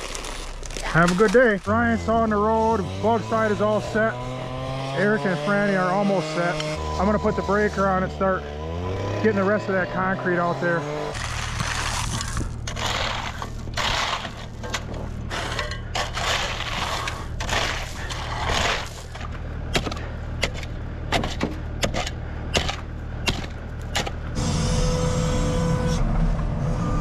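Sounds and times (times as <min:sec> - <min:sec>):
sharp cracks and knocks: 0:00.0 - 0:01.7, 0:11.1 - 0:15.1, 0:15.9 - 0:24.2
breaker crunching concrete: 0:00.0 - 0:24.4
machine engine running: 0:00.9 - 0:27.0.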